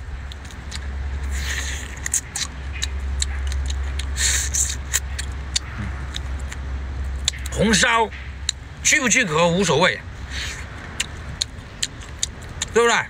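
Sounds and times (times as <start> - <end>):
low rumble: 0.0 - 12.7
hissing slurp: 0.3 - 6.6, 10.2 - 12.8.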